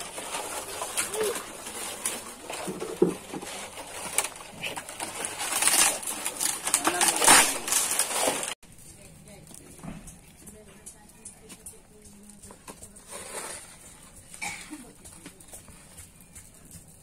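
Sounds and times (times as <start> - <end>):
palm fronds rustling: 0.0 - 10.6, 12.2 - 16.0.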